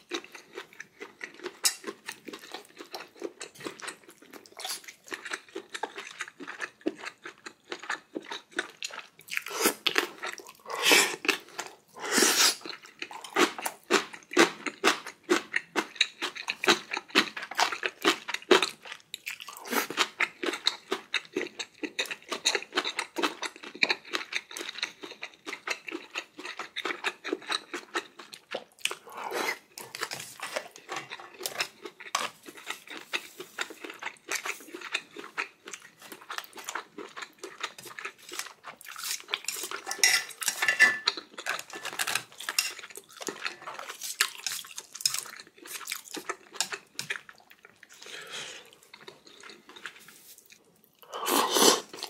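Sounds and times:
utensils clinking on dishes: 0:39.5 - 0:42.9.

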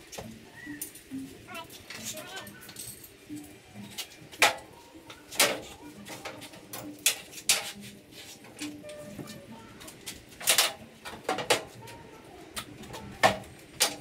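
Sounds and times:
dove cooing: 0:00.4 - 0:02.8, 0:03.5 - 0:06.7
metallic clanks of tools: 0:01.9 - 0:04.6, 0:10.1 - 0:11.7.

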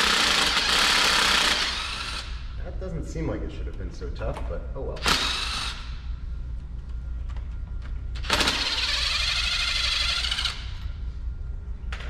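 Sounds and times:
power driver running: 0:00.0 - 0:02.5, 0:05.0 - 0:06.0, 0:07.3 - 0:11.0.

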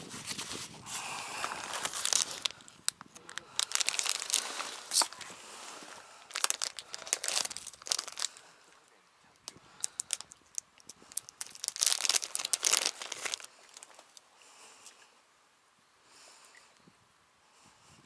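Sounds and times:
plastic packet crinkling: 0:01.4 - 0:02.6, 0:03.2 - 0:05.3, 0:06.3 - 0:08.4, 0:09.8 - 0:14.2.

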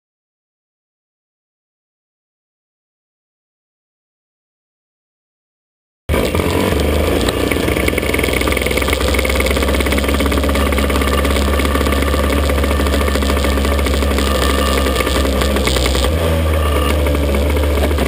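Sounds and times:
kart engine running: 0:06.1 - 0:18.0.

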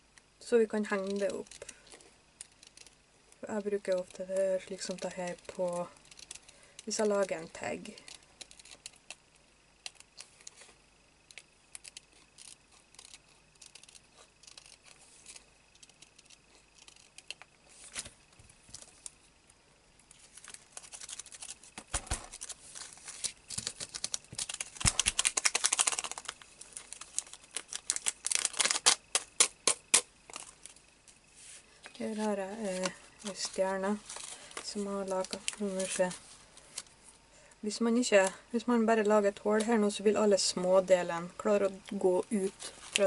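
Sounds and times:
scissors snipping plastic: 0:00.8 - 0:01.8
plastic crinkling: 0:20.1 - 0:30.9, 0:31.8 - 0:37.0, 0:41.7 - 0:43.0.

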